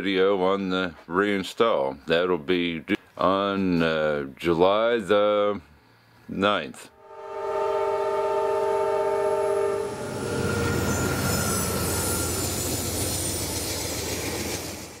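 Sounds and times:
horn chord: 0:07.0 - 0:12.3.

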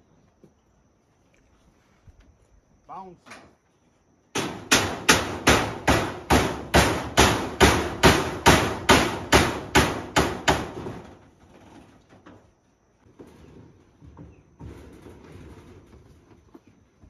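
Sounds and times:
hammer on metal roofing: 0:04.3 - 0:11.2.

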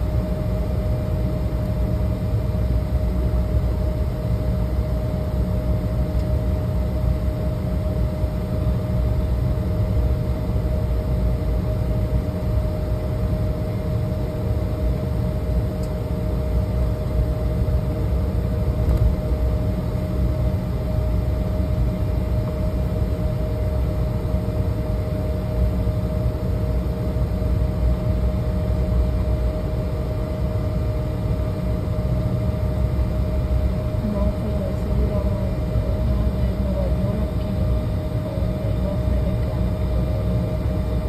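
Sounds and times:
airliner cabin rumble: 0:00.0 - 0:41.0
steady hum: 0:00.0 - 0:41.0.

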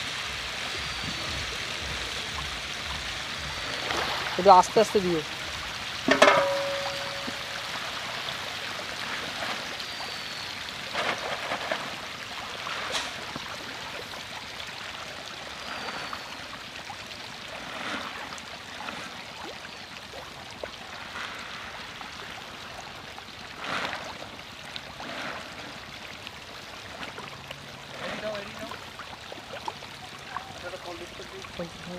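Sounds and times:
fish splashing in water: 0:00.0 - 0:31.9
louder splash: 0:05.9 - 0:10.3.

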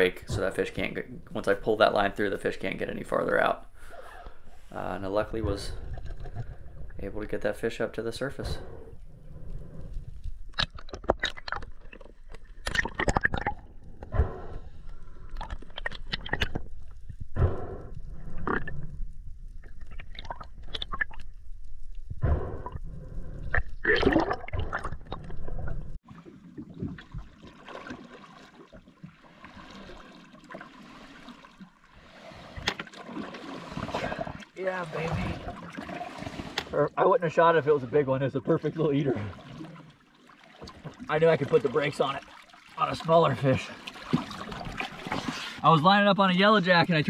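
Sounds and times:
underwater gurgling: 0:22.1 - 0:36.7
water washing at surface: 0:27.0 - 0:36.7.

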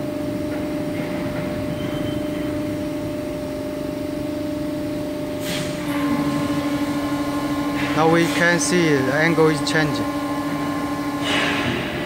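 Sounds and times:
hydraulic pump humming: 0:00.0 - 0:12.0.

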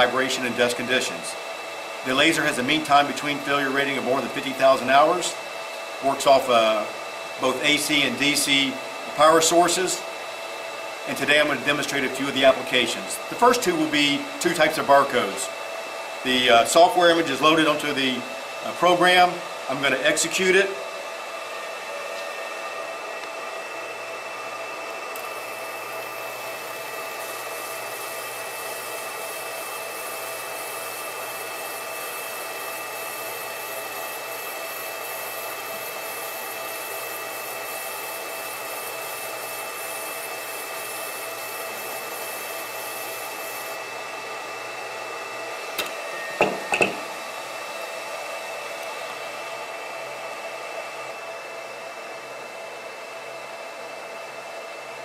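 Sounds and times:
laser marker fan hum: 0:00.0 - 0:55.0.

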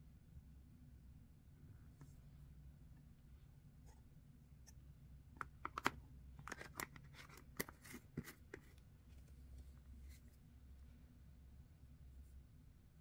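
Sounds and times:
plastic lid twisting shut: 0:05.4 - 0:08.6.

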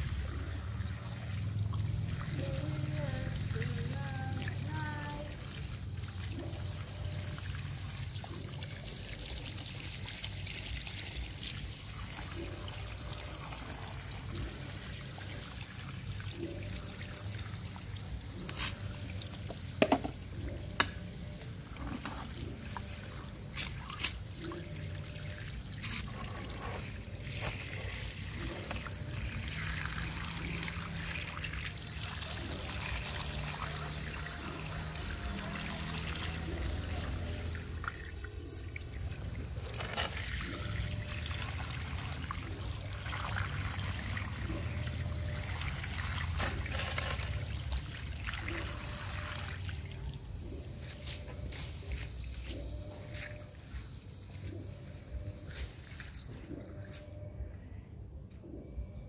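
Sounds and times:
water from hose splashing: 0:00.0 - 0:54.8.

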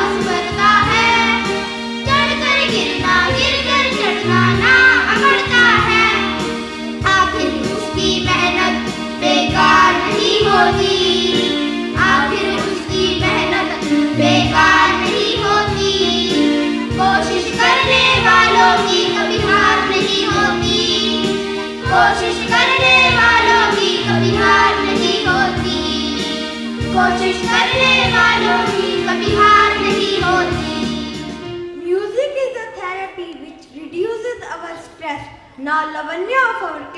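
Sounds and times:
boys singing into microphones: 0:00.0 - 0:01.2
music with steady beat: 0:00.0 - 0:31.8.

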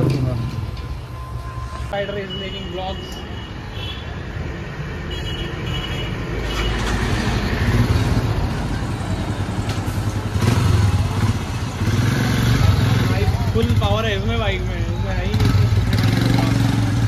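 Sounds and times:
motorcycle engine revving: 0:10.2 - 0:17.0.

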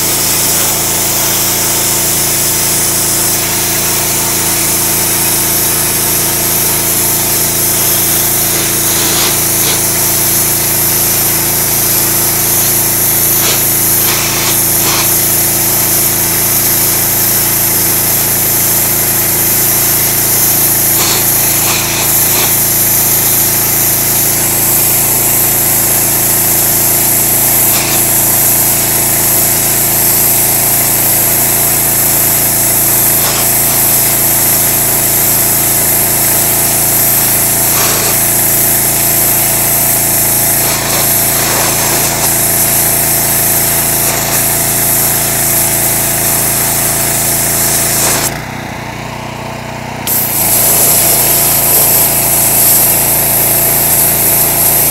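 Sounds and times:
sandblaster hissing: 0:00.0 - 0:48.4, 0:50.1 - 0:54.9
motor hum: 0:50.0 - 0:54.9.

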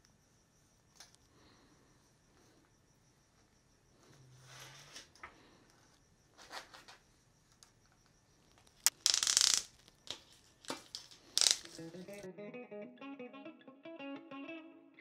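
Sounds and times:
tape rustling and crinkling: 0:08.6 - 0:12.2
tape tearing: 0:08.8 - 0:12.2
guitar music: 0:11.8 - 0:15.0.

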